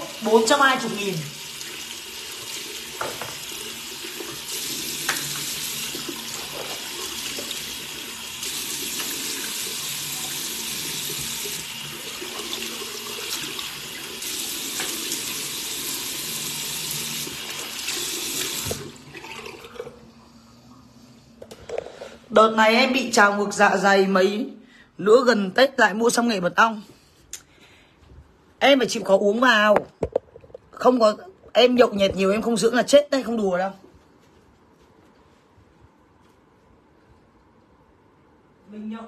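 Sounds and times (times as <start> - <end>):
tap water running into sink: 0.0 - 20.0.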